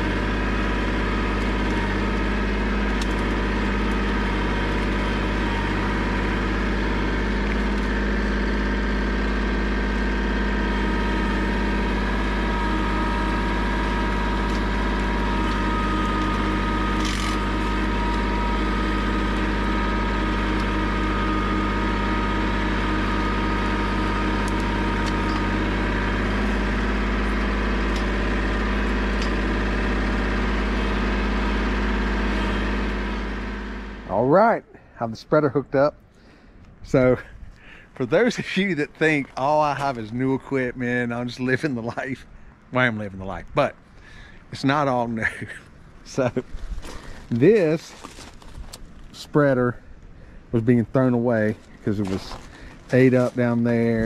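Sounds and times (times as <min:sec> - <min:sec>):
rake tines scraping debris: 0:00.0 - 0:33.2, 0:46.0 - 0:49.7, 0:51.2 - 0:54.0
tractor engine running: 0:00.0 - 0:54.0.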